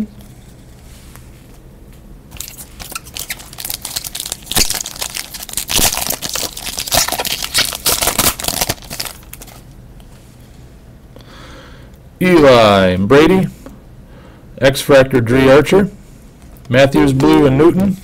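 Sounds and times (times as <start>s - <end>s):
foil wrapper crinkling: 2.3s - 9.7s.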